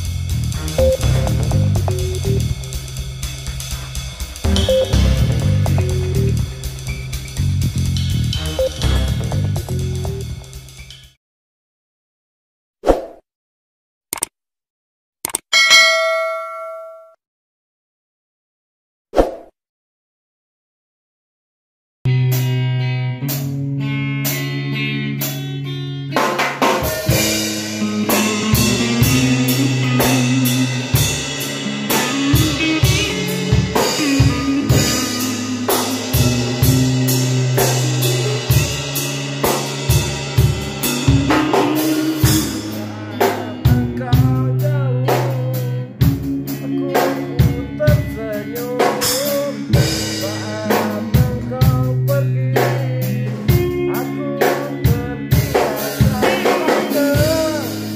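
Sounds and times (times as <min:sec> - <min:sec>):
low bass note: 0:00.0 - 0:02.9, 0:04.5 - 0:06.8
electric guitar: 0:00.0 - 0:10.6, 0:22.1 - 0:57.9
drum kit: 0:00.0 - 0:11.1, 0:26.1 - 0:57.9
lead guitar bending notes: 0:00.6 - 0:03.0, 0:04.4 - 0:06.9, 0:27.1 - 0:40.0.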